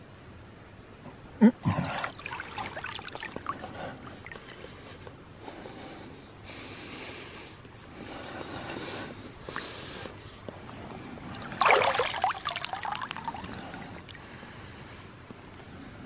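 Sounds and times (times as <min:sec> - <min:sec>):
water gurgling and sloshing: 0:01.7 - 0:05.0, 0:10.5 - 0:15.1
crackling splashes: 0:01.9 - 0:04.7, 0:11.3 - 0:14.3
bubbling gulp of water: 0:11.3 - 0:14.2.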